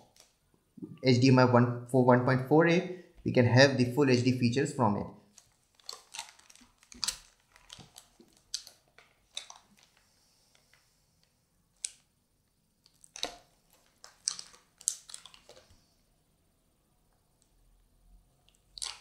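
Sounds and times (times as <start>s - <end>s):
anti-static bag crinkling: 5.3s - 12.1s, 12.8s - 16.0s.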